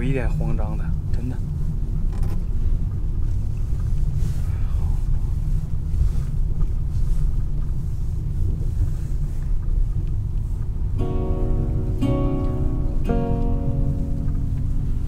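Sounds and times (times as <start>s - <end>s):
car road and engine rumble: 0.0s - 15.0s
plucked guitar music: 11.0s - 15.0s.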